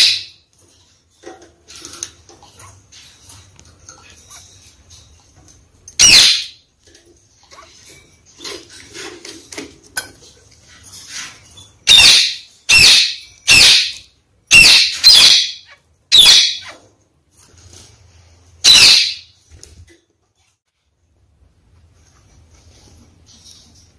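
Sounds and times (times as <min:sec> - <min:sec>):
parakeet calls: 0:06.0 - 0:06.6, 0:11.8 - 0:16.9, 0:18.6 - 0:19.3.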